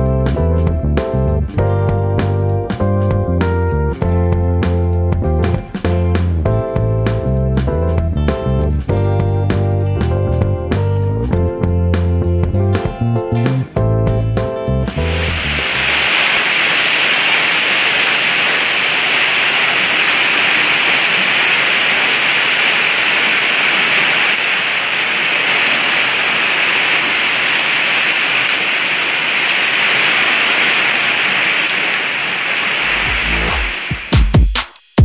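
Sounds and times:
heavy rain and hail: 14.9s - 34.2s.

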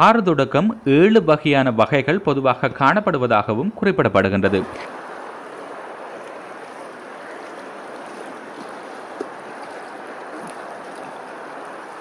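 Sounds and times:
wind: 0.0s - 12.0s
open water washing: 4.1s - 12.0s.

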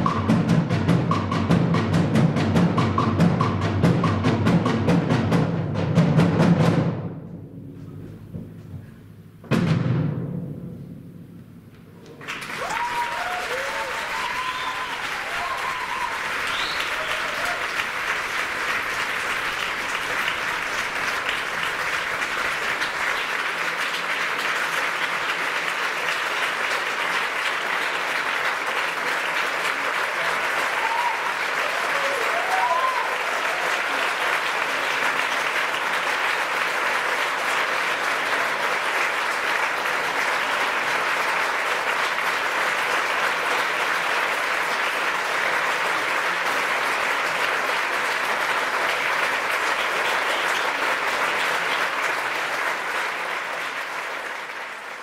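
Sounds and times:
audience applauding: 12.0s - 55.0s
shouted calls: 12.6s - 17.8s.

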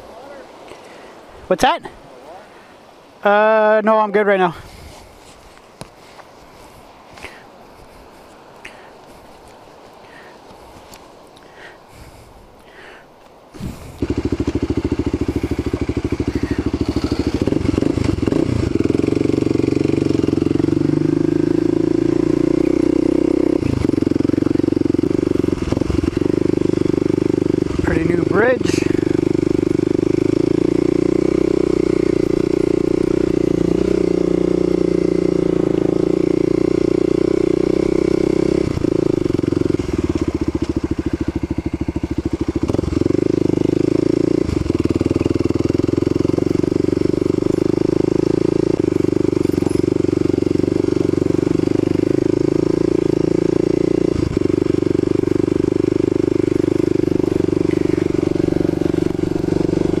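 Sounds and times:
motorcycle engine running: 13.7s - 60.0s.

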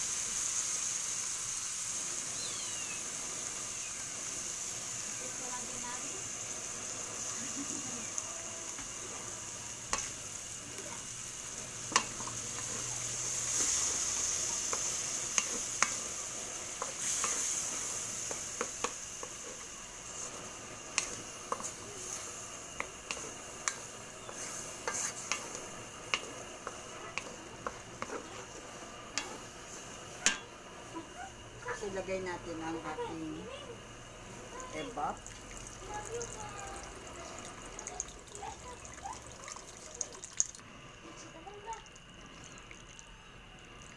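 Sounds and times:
food sizzling: 0.0s - 43.9s
wooden spatula scraping a pan: 11.9s - 30.4s.

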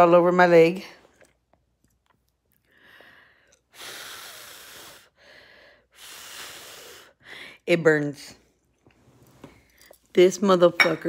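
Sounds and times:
woman breathing heavily: 2.6s - 7.7s.

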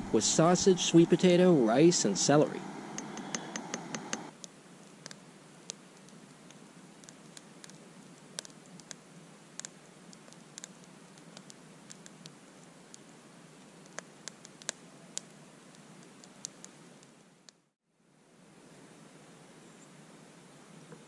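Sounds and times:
fire hissing: 0.0s - 4.3s
campfire pops and snaps: 9.6s - 12.4s, 13.8s - 17.6s.

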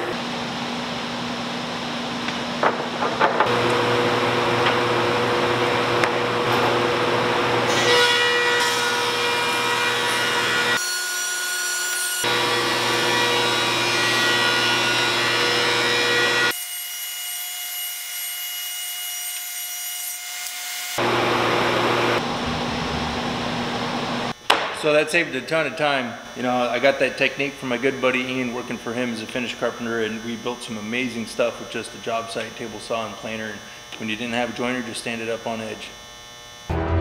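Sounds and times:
dust collector running: 0.0s - 7.7s, 21.0s - 37.0s
thickness planer running: 0.0s - 16.5s, 21.0s - 25.0s.

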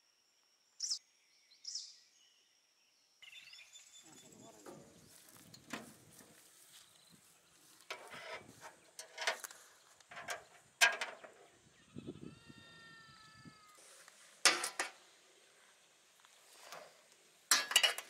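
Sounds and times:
metal tongs scraping grill: 7.8s - 11.5s, 14.4s - 15.0s, 16.4s - 18.0s
animal bleat: 11.7s - 13.8s.

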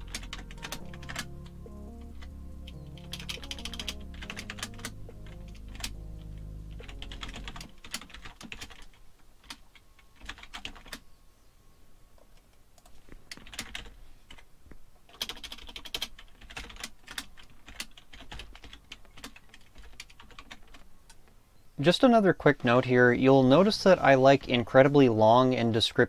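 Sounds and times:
computer keyboard typing: 0.0s - 11.0s, 12.8s - 14.4s, 15.1s - 20.8s.

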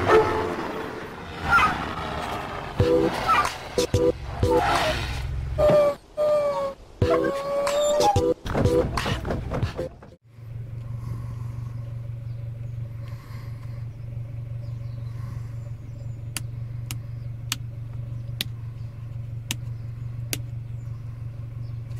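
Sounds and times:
car engine idling: 8.8s - 21.9s.

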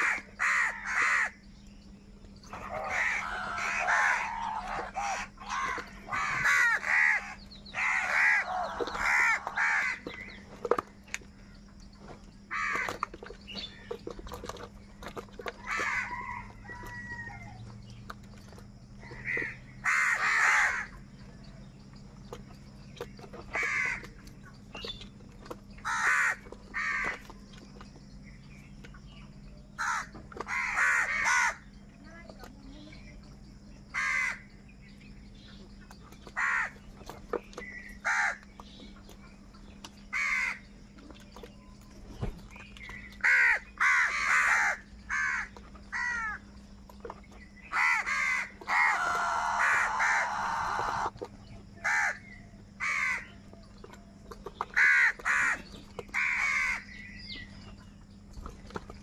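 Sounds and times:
crows cawing: 0.0s - 1.4s, 2.5s - 10.3s, 12.5s - 13.0s, 15.6s - 17.6s, 19.0s - 21.0s, 23.5s - 24.2s, 25.8s - 27.3s, 29.8s - 31.7s, 33.9s - 34.5s, 36.4s - 36.8s, 38.0s - 38.4s, 40.1s - 40.7s, 43.2s - 46.4s, 47.7s - 51.1s, 51.8s - 53.4s, 54.7s - 57.0s.

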